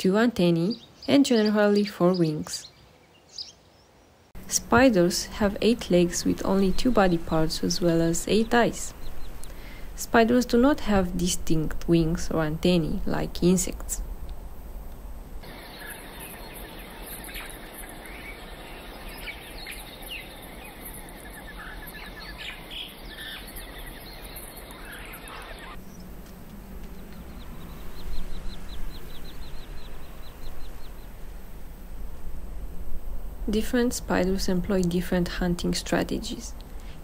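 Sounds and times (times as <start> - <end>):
steady outdoor background: 0.0 - 37.0
birds chirping and calling: 0.5 - 4.1, 5.0 - 9.8, 15.4 - 26.1, 26.8 - 31.2
fast evenly spaced trill: 15.4 - 25.8.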